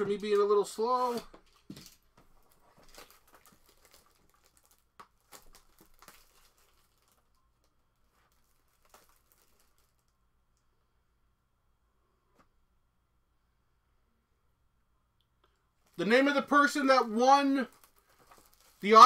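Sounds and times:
plastic shrink-wrap crinkling: 0.1 - 10.2, 15.8 - 19.0.

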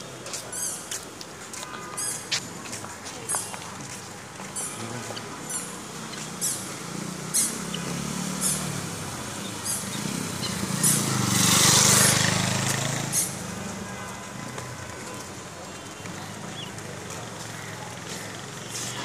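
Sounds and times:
vehicle engine passing: 4.8 - 13.7.

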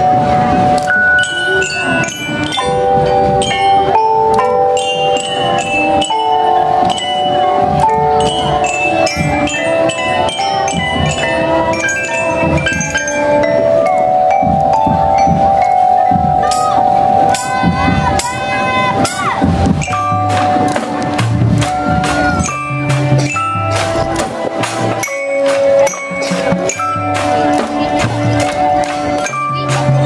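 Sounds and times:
glockenspiels struck with mallets: 0.0 - 30.0
xylophones: 0.0 - 30.0.

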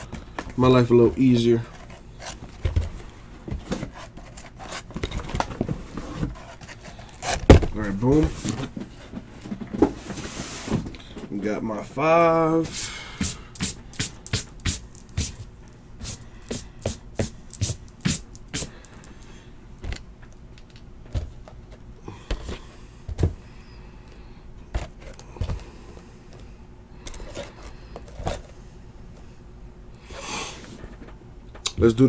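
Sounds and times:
boxes knocking and scraping on table: 2.3 - 11.0.

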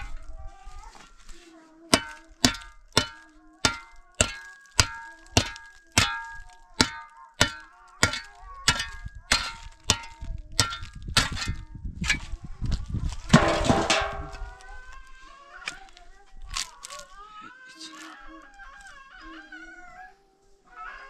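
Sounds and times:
metal clanging with ringing tone: 2.0 - 12.3, 13.3 - 14.6.

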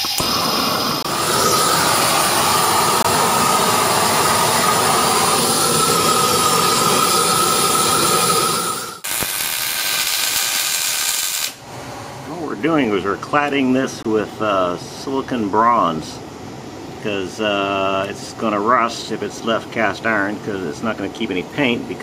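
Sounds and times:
brazing crackling hiss: 0.0 - 11.6
torch flame hissing: 0.0 - 11.6.

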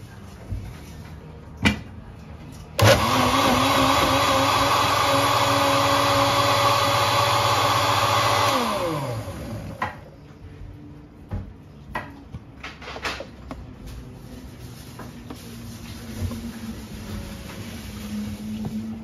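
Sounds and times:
blender running: 2.8 - 9.8.

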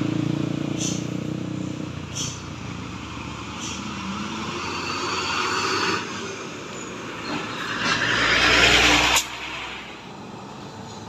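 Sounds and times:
traffic: 0.0 - 11.0
truck diesel engine passing: 0.0 - 11.0
truck hiss: 0.8 - 1.2, 2.0 - 2.6, 3.4 - 6.2.

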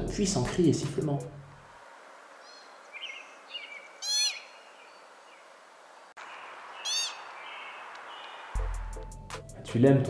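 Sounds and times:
steady outdoor hiss: 0.0 - 10.0
pika calling: 2.4 - 5.5, 6.2 - 8.6.

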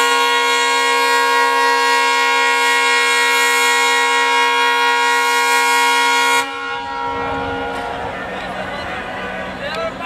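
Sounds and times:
locomotive air horn chord: 0.0 - 10.0.

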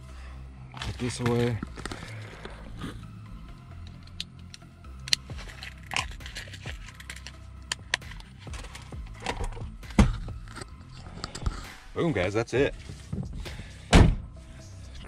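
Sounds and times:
loud thump: 13.9 - 14.3.

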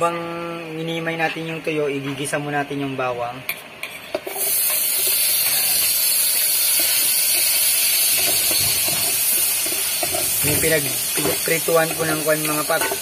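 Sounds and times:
garlic sizzling in hot oil: 4.2 - 13.0.

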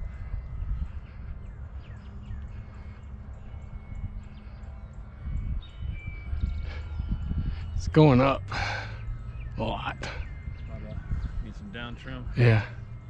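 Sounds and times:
faint bird chirps: 0.0 - 13.0
wind buffeting microphone: 0.0 - 13.0.

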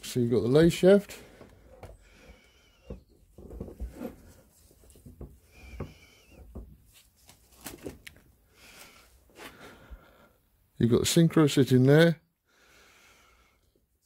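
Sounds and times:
faint high squeaks: 5.4 - 6.5
plastic bag rustling: 6.8 - 8.9.

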